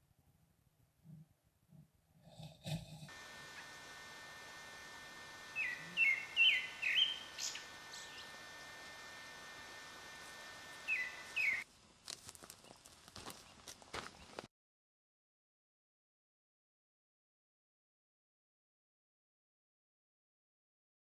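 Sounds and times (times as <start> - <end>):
background hiss: 3.1 - 12.4
bird chirping: 5.4 - 9.0, 10.6 - 11.6.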